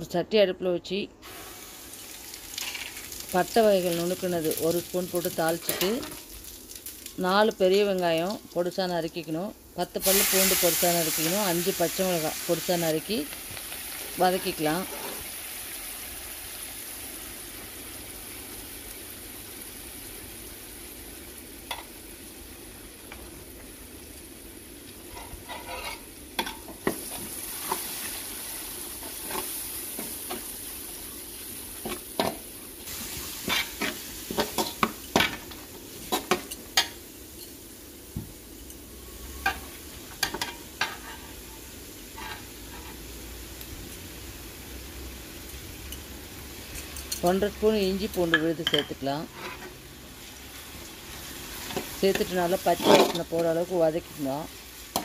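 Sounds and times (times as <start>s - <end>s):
onions sizzling in oil: 1.2s - 55.0s
metal spatula scraping a pan: 14.4s - 15.3s, 25.1s - 26.6s, 40.4s - 43.0s, 49.2s - 49.8s, 52.6s - 53.4s.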